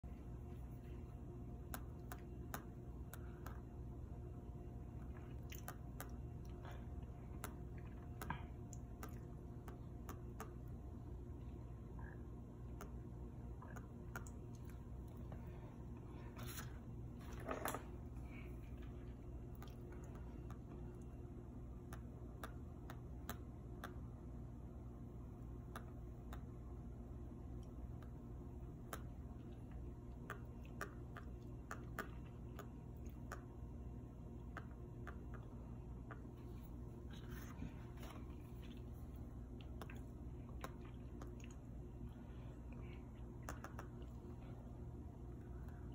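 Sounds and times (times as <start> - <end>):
low steady hum: 0.0 - 45.9
light sharp ticks: 21.9 - 24.0, 28.8 - 33.6.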